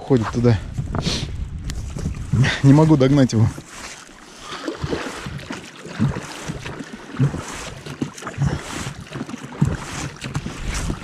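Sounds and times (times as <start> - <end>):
wind buffeting microphone: 0.0 - 3.7
oars thumping in water: 1.7 - 11.0.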